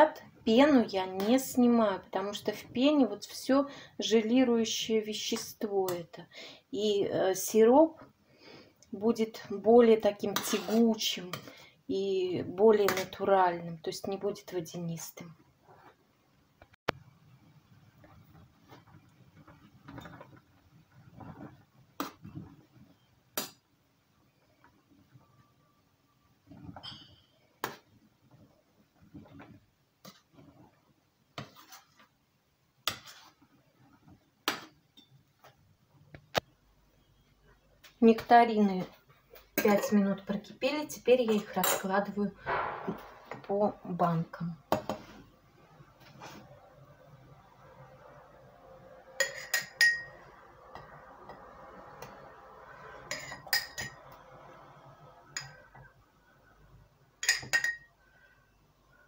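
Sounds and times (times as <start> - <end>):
metal spoon clinking against pot: 49.2 - 50.2, 57.2 - 57.9.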